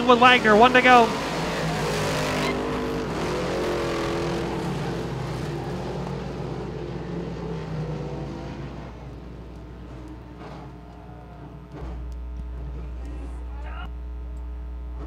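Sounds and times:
race car engines running: 0.0s - 15.0s.

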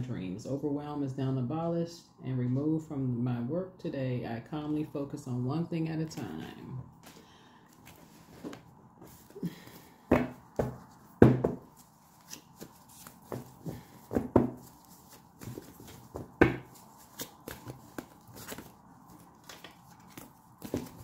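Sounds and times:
cards shuffled by hand: 11.7s - 21.0s.

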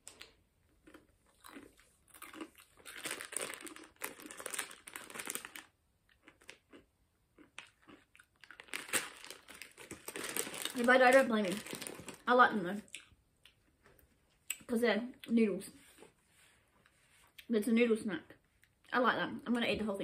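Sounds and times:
crunchy snack chewing: 0.1s - 12.2s
plastic packet crinkling: 2.2s - 6.6s, 7.6s - 12.6s.

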